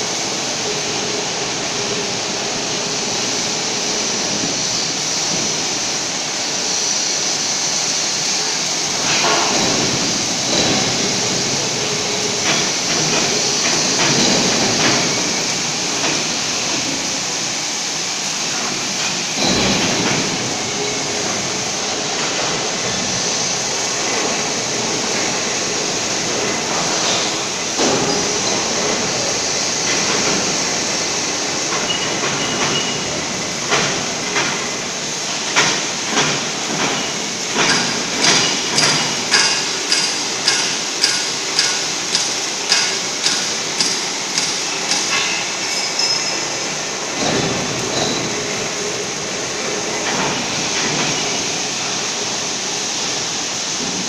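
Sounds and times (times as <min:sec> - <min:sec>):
ringing metallic strikes: 0:39.4 - 0:46.5.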